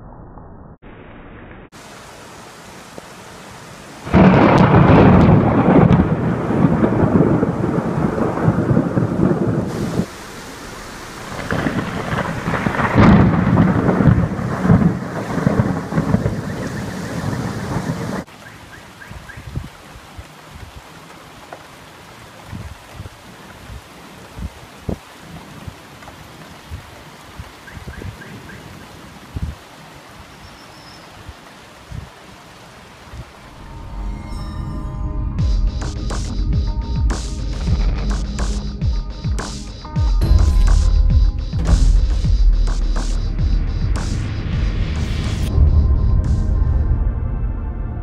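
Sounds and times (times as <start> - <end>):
heavy rain hissing: 1.7 - 34.6
thunder rumbling: 4.0 - 18.3, 35.3 - 38.5.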